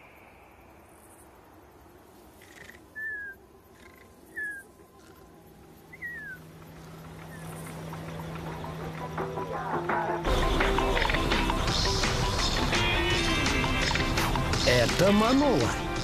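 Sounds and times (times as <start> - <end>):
low steady hum: 2.8 - 14.5
music: 7.2 - 16.0.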